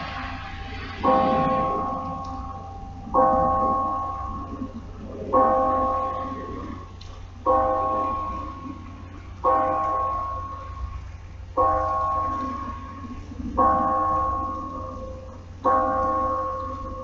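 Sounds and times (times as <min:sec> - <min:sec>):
tower bell tolling: 0:00.0 - 0:17.0.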